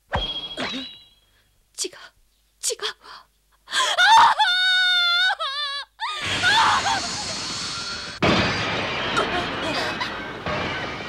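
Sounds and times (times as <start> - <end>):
sharp hit: 0.0 - 1.3, 6.4 - 11.0
high-pitched scream: 6.0 - 8.2.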